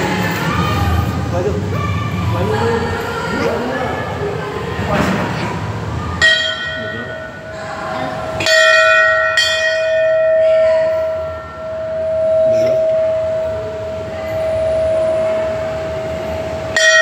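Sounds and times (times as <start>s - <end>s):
metal temple bell ringing: 6.2s - 17.0s.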